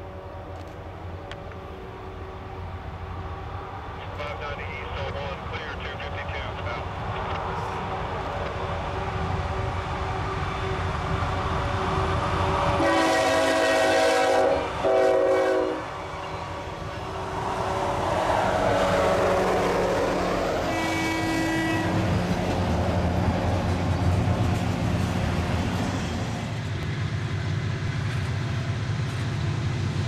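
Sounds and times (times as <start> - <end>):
locomotive engines passing: 0.0 - 30.0
train wheels rumbling and clattering: 4.0 - 30.0
train air horn blasts: 12.8 - 16.0, 18.7 - 22.1.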